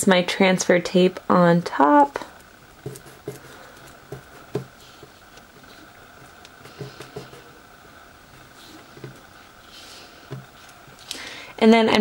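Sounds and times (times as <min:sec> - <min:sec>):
fingers tapping on countertop: 0:02.8 - 0:05.2, 0:06.5 - 0:07.5.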